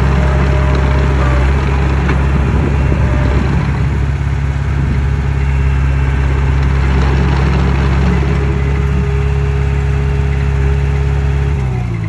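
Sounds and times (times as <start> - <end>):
bulldozer diesel engine idling: 0.0 - 12.0.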